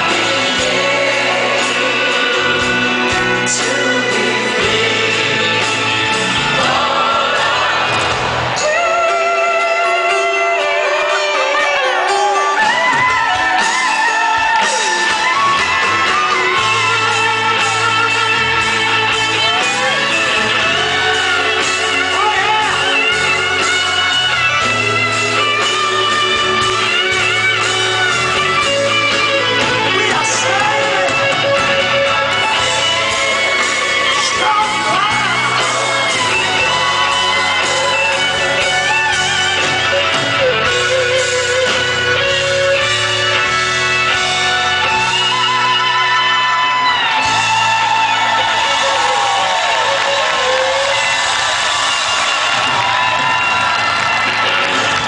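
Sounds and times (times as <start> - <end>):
singers singing together: 0.0 - 9.4
live rock band playing: 0.0 - 55.0.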